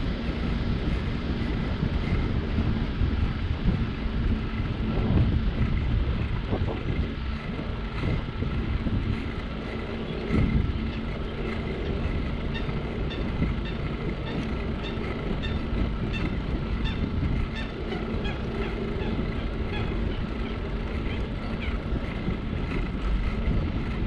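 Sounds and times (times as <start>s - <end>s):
tyres rolling on asphalt: 0.0s - 24.0s
wind buffeting microphone: 0.0s - 24.0s.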